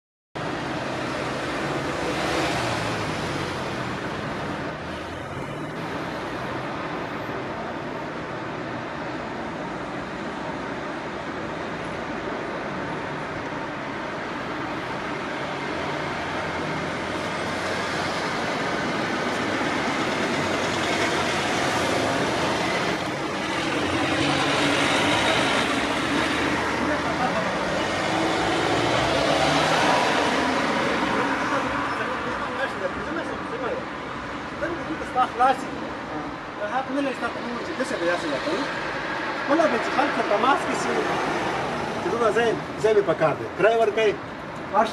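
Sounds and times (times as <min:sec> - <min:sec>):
cars passing: 0:00.4 - 0:44.9
road traffic noise: 0:00.4 - 0:44.9
vehicle passing: 0:15.4 - 0:32.8.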